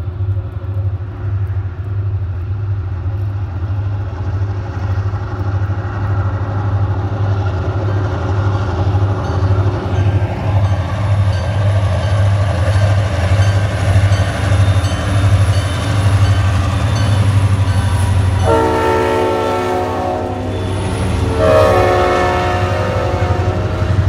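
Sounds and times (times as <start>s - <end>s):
freight cars rolling on rails: 0.0s - 24.0s
locomotive engine rumble: 0.0s - 24.0s
locomotive air horn: 18.4s - 24.0s.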